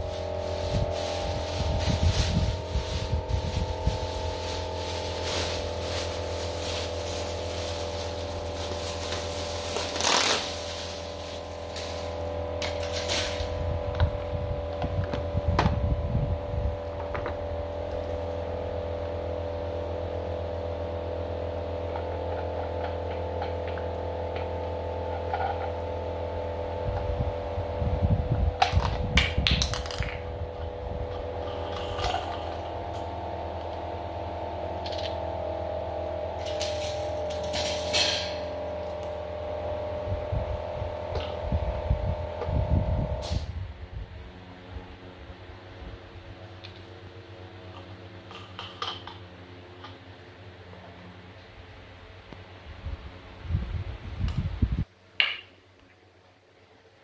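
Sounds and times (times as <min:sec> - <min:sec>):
steady hum: 0:00.0 - 0:57.0
fan parts clicking and knocking: 0:16.8 - 0:18.4, 0:21.8 - 0:25.9, 0:28.6 - 0:33.9, 0:47.6 - 0:50.1.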